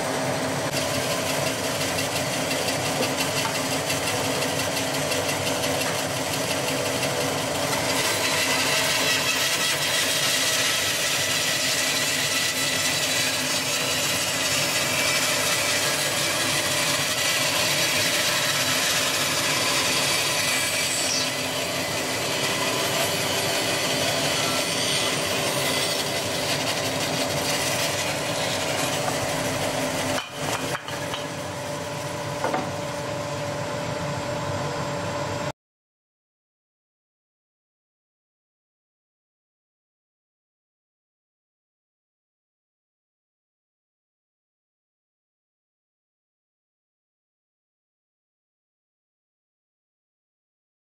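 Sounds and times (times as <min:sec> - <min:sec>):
bandsaw cutting wood: 0:00.0 - 0:33.0.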